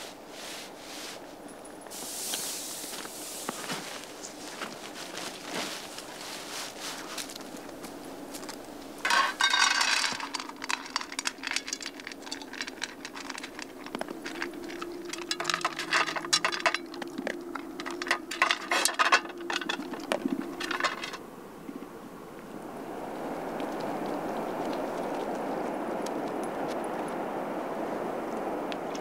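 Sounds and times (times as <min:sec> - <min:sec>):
metallic clinking and jangling: 0:09.1 - 0:21.2.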